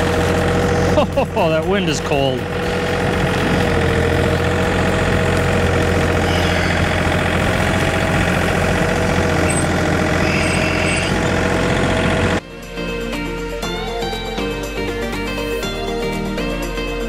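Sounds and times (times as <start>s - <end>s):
loader bucket plowing snow: 0.0s - 12.4s
tractor diesel engine running: 0.0s - 17.0s.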